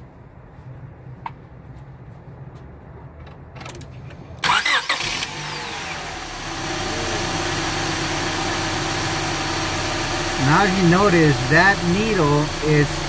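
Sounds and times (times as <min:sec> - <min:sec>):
car starter cranking: 0:03.6 - 0:06.3
car engine idling: 0:04.4 - 0:13.0.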